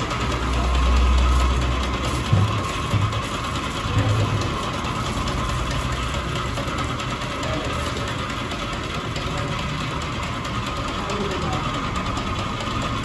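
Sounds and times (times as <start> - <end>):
motor running: 0.0 - 13.0.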